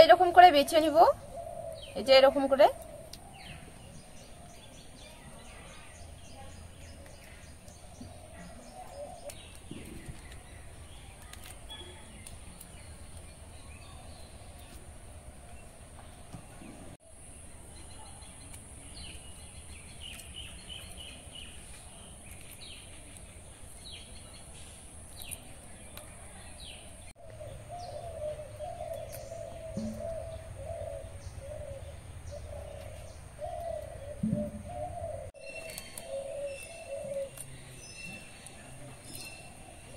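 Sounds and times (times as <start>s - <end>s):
birds cooing: 0.0s - 10.8s, 25.8s - 39.9s
high bird chirps: 27.2s - 39.9s.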